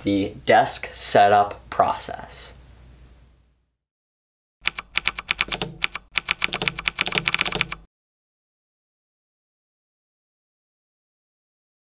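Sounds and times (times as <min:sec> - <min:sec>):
fast typing on computer keyboard: 0:04.6 - 0:07.9.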